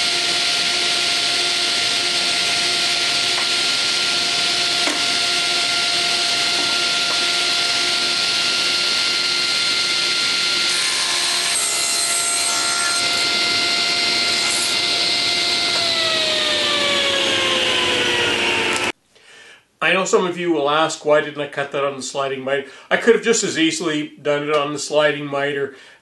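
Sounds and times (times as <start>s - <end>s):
saw blade cutting wood: 0.0s - 18.9s
table saw whine: 0.0s - 19.0s.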